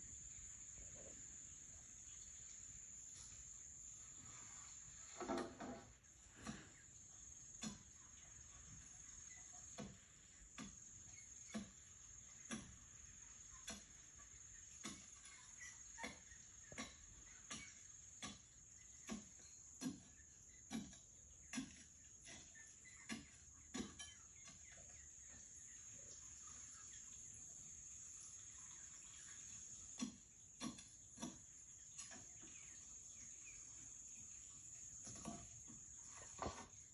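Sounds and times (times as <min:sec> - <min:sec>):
steady high hiss: 0:00.0 - 0:18.8.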